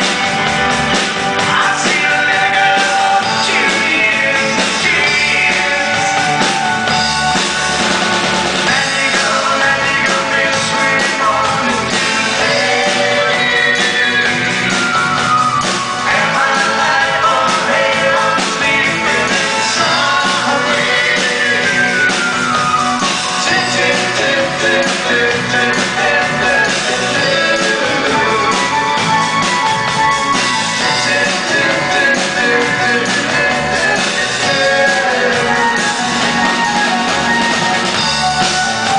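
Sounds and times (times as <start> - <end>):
acoustic guitar: 0.0 - 38.9
bass guitar: 0.0 - 38.9
drums: 0.0 - 38.9
keyboards: 0.0 - 38.9
person singing lead vocals: 1.3 - 6.9, 8.6 - 29.2, 30.6 - 37.4.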